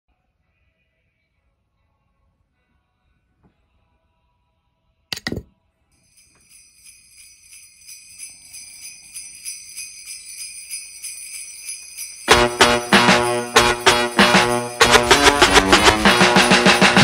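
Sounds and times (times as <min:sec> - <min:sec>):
sleigh bells shaken: 0:06.0 - 0:17.0.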